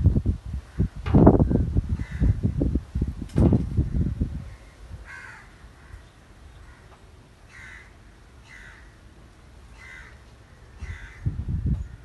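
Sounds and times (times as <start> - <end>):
crows cawing: 2.0 - 2.4, 5.0 - 9.0, 9.7 - 12.0.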